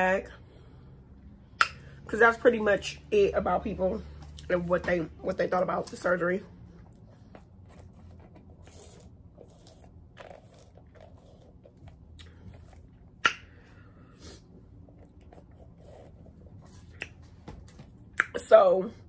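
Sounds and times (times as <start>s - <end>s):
quiet chewing: 6.8s - 13.1s.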